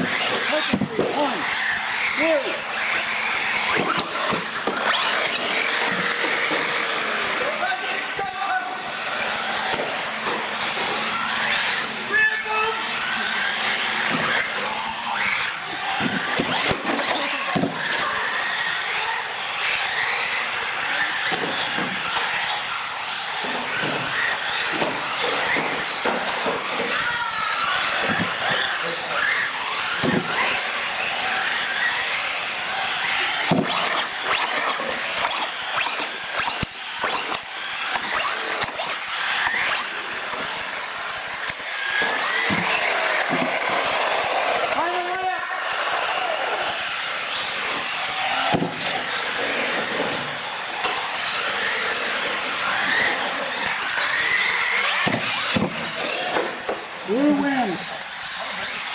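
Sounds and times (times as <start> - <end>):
toy cars bumping: 0.0 - 12.1, 12.8 - 58.9
small motors whining: 0.0 - 58.9
tyres scrubbing on concrete: 27.6 - 56.7.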